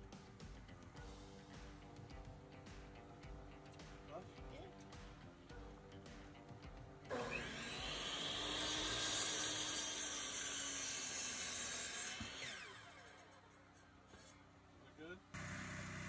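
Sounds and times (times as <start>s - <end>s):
saw winding down whine: 7.1s - 13.9s
miter saw cutting wood: 7.1s - 14.4s, 15.4s - 16.0s.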